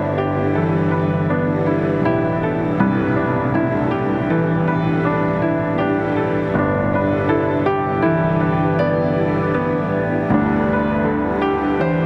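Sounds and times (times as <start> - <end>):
slow soft instrumental chords: 0.0 - 12.0.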